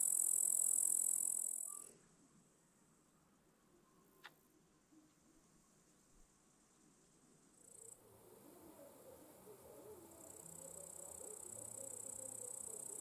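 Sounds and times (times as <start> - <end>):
crickets trilling: 0.0 - 1.9, 7.5 - 13.0.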